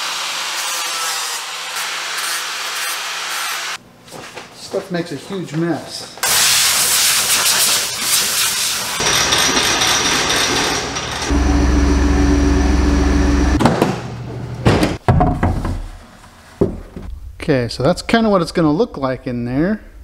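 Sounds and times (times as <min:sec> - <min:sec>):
steady low hum: 0:11.3 - 0:14.7.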